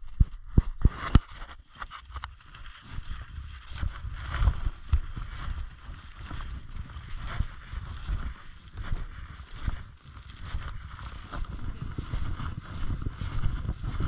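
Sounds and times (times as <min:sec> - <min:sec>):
footsteps crunching through snow: 0:00.0 - 0:14.0.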